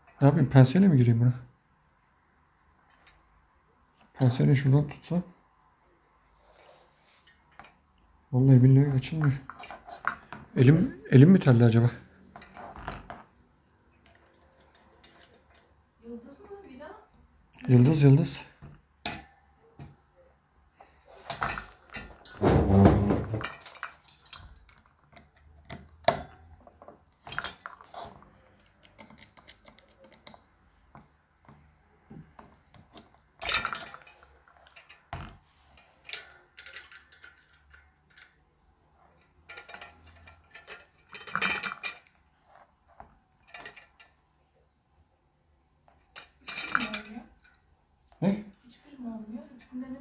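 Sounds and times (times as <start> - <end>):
metal tools clinking and scraping: 21.0 - 26.5, 33.4 - 38.4, 39.1 - 42.7, 43.4 - 44.2, 46.0 - 47.6
metal rattle: 39.3 - 42.1.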